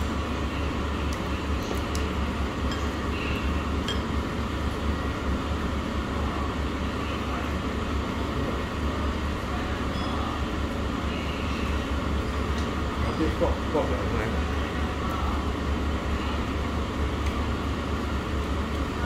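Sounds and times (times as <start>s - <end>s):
restaurant dining room hum: 0.0s - 19.0s
tableware clinking: 3.8s - 4.2s.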